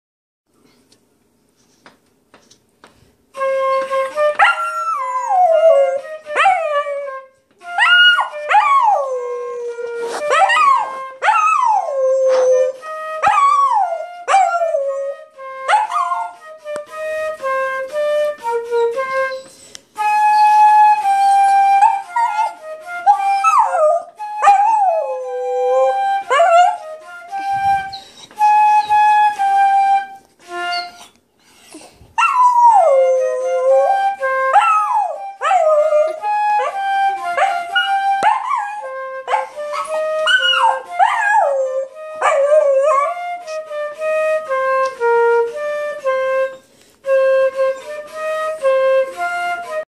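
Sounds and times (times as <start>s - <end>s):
flute playing held notes: 3.3s - 49.9s
dog howling and whining: 3.8s - 7.2s, 7.8s - 16.4s, 20.4s - 29.1s, 30.6s - 43.6s.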